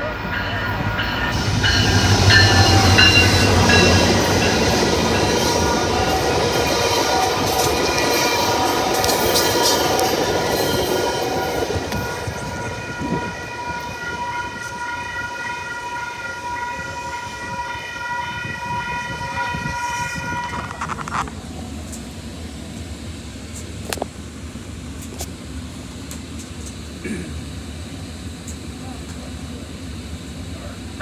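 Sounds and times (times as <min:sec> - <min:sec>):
low rumble inside moving train: 0:00.0 - 0:31.0
train running past: 0:00.0 - 0:31.0.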